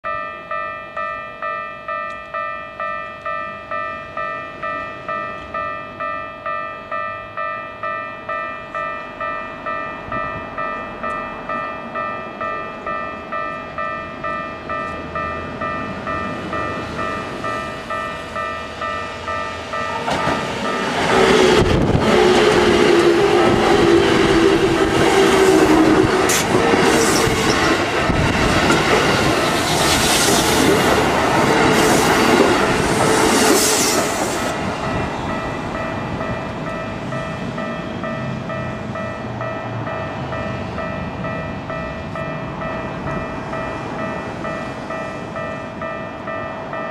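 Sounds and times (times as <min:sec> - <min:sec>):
level crossing bell ringing: 0:00.0 - 0:21.3, 0:34.5 - 0:46.9
electric train passing: 0:00.1 - 0:46.9
train wheels clattering: 0:18.8 - 0:38.4.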